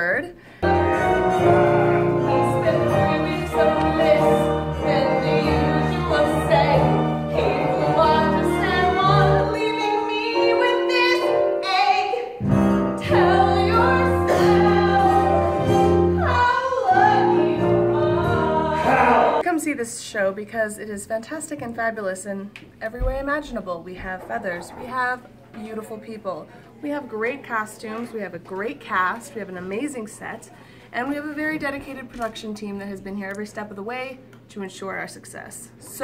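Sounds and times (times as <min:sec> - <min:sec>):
instrumental accompaniment: 0:00.6 - 0:11.8, 0:12.4 - 0:19.4
woman singing: 0:00.6 - 0:12.4, 0:13.0 - 0:19.4.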